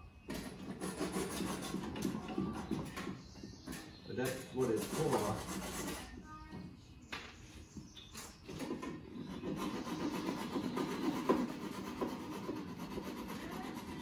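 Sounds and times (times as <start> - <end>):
hand saw rasping through wood: 0.3 - 2.9, 4.1 - 6.1, 8.6 - 14.0.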